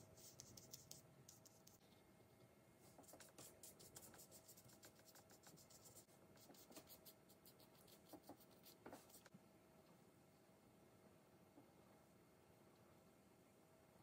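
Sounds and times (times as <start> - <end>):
brush strokes on paper: 2.8 - 9.3.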